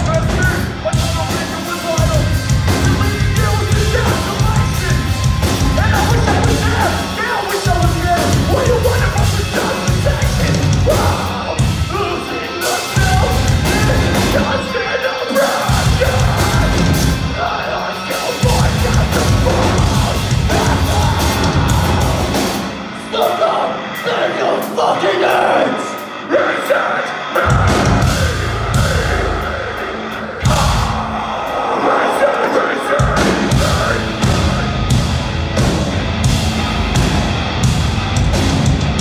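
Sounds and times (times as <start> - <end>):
metalcore band playing live: 0.0 - 39.0
screamed vocals: 8.5 - 34.7.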